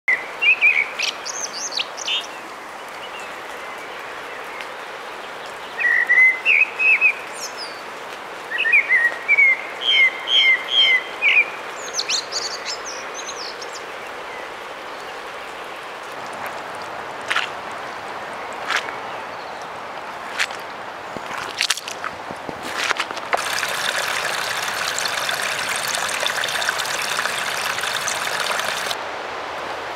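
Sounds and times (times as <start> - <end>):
mountain streams rushing: 22.7 - 29.9
songbirds singing: 23.4 - 29.0.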